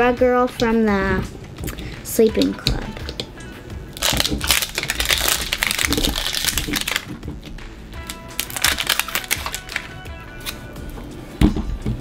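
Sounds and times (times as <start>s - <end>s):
background music: 0.0s - 12.0s
plastic wrapper crinkling and tearing: 3.9s - 7.2s, 8.0s - 10.6s.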